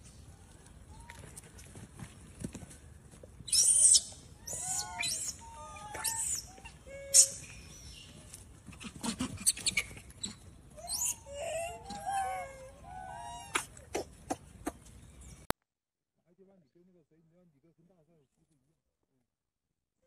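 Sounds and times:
macaques squealing and chirping: 3.4s - 14.8s.

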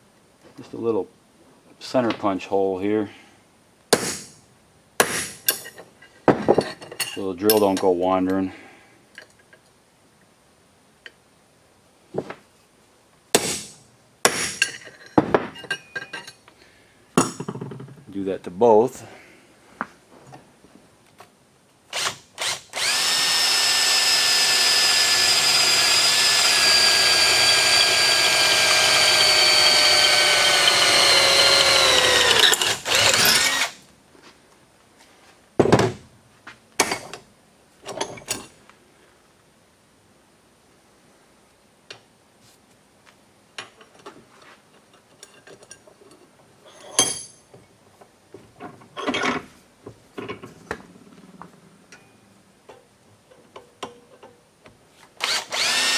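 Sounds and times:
knocks and metal clinks: 5.0s - 8.4s, 14.4s - 16.4s, 44.9s - 47.8s, 48.6s - 49.5s, 51.9s - 54.4s
power drill drilling steel: 21.9s - 33.8s, 55.2s - 55.9s.

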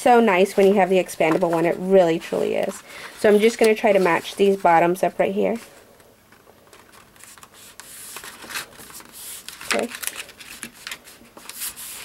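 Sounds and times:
card stock rustling and scraping: 0.6s - 4.8s, 6.7s - 12.0s.

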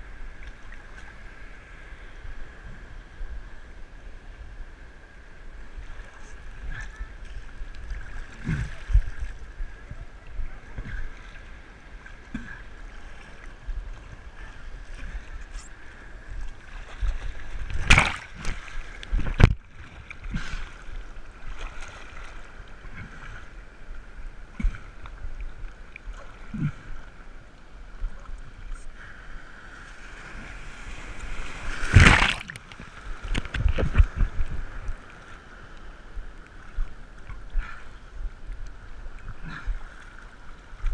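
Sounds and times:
sea water sloshing: 5.7s - 40.9s
loud water splashes: 17.7s - 19.5s, 30.2s - 32.8s.

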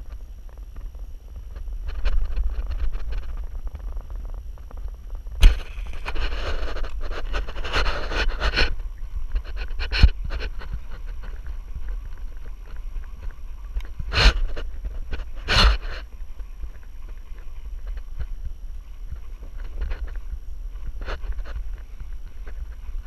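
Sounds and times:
rustling: 0.0s - 18.4s
wind rumbling on microphone: 0.0s - 23.0s.

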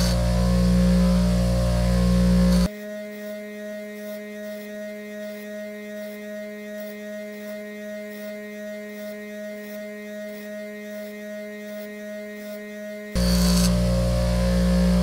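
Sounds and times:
grinding metal: 0.0s - 2.7s, 13.2s - 15.0s
bench grinder humming: 0.0s - 15.0s.

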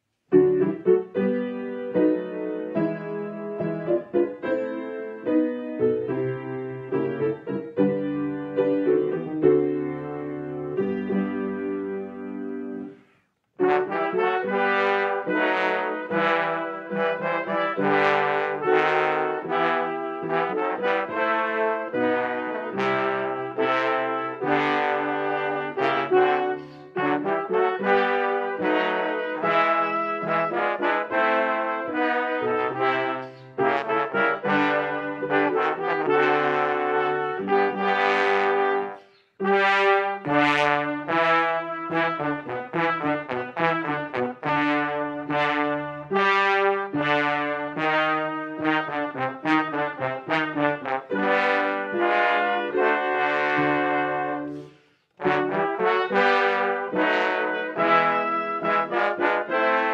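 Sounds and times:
brass ensemble with piano: 0.0s - 59.9s.

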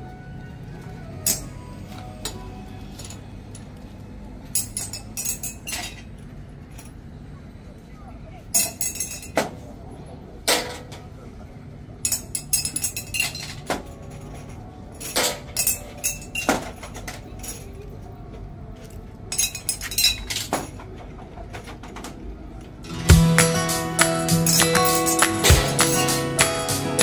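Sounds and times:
steady background noise: 0.0s - 27.0s
dishes and cutlery clinking: 4.6s - 6.1s, 12.0s - 17.8s, 19.3s - 20.9s.

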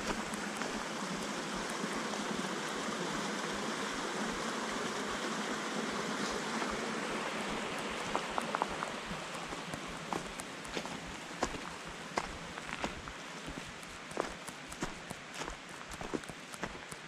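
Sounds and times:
footsteps crunching on gravel: 0.0s - 0.9s, 8.0s - 17.0s
creek water rushing: 0.0s - 17.0s.

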